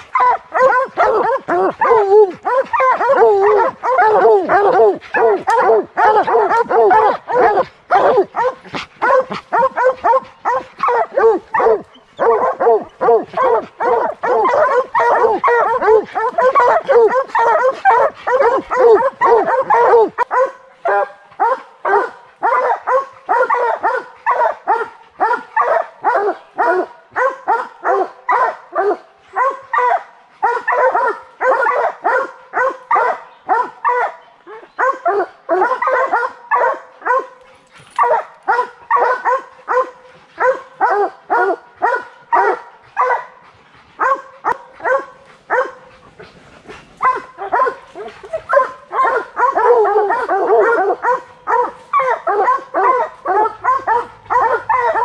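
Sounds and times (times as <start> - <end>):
hounds barking: 0.0 - 55.0.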